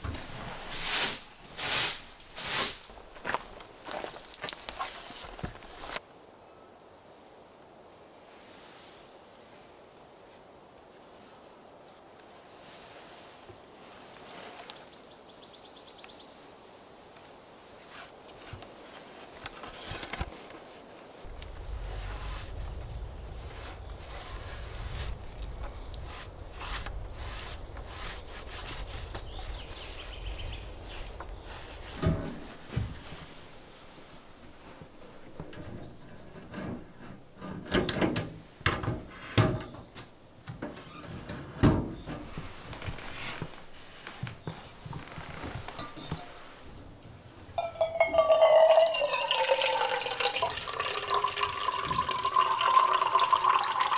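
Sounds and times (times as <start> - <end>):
hand rubbing oil into wooden bowl: 21.3 - 34.0.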